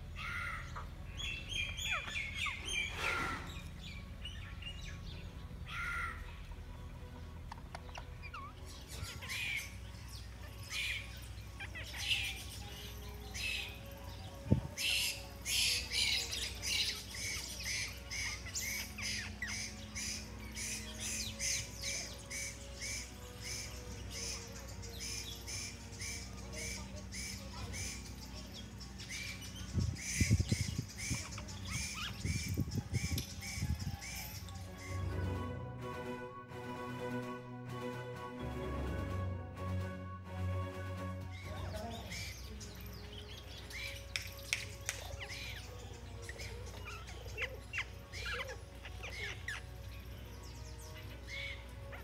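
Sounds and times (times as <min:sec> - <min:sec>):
parakeet squawking: 0:07.8 - 0:09.7, 0:10.7 - 0:12.5, 0:14.8 - 0:24.4, 0:46.3 - 0:49.7.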